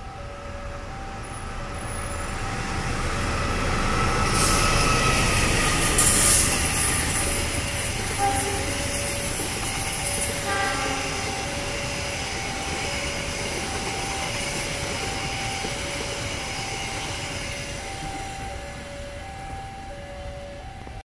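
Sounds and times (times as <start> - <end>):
train coaches rolling on rails: 0.0 - 21.0
two-tone electronic warning: 0.0 - 21.0
high-pitched toot: 8.0 - 20.0.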